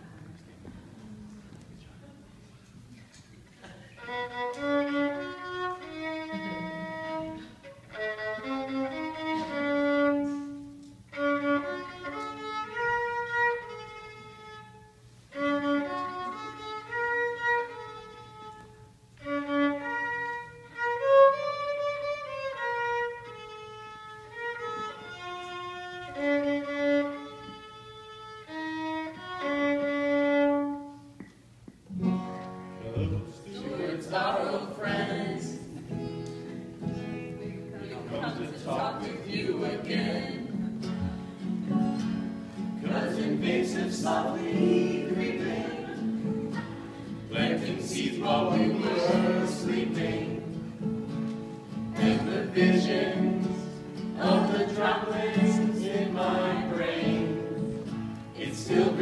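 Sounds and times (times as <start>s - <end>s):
solo violin melody: 4.0s - 31.1s.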